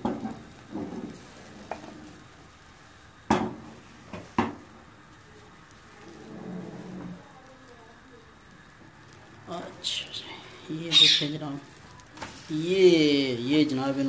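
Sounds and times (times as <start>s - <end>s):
pan knocking on stove: 0.0s - 1.9s, 3.3s - 4.6s
spatula scraping frying pan: 0.0s - 2.3s, 6.0s - 7.2s.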